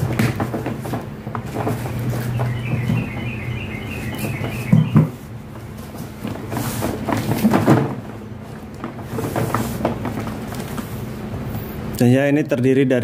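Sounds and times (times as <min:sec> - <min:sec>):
cardboard scraping and rustling: 0:00.0 - 0:03.2, 0:04.0 - 0:11.2
rapid high chirping: 0:02.0 - 0:05.1.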